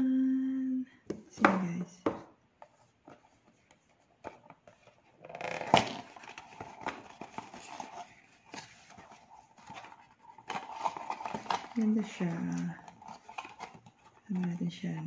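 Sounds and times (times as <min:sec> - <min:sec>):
cardboard scraping and rustling: 0:02.7 - 0:14.6.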